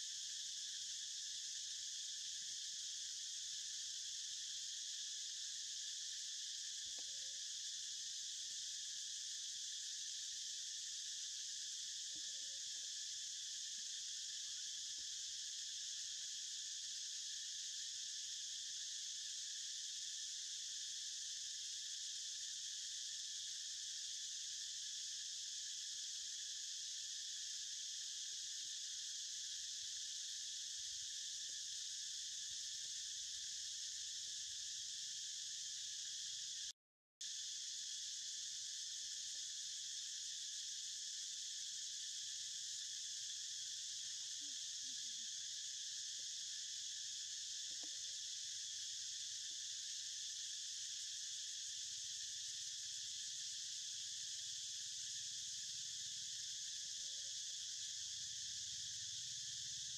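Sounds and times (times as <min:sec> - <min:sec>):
high-pitched insect chorus: 0:00.0 - 0:59.9.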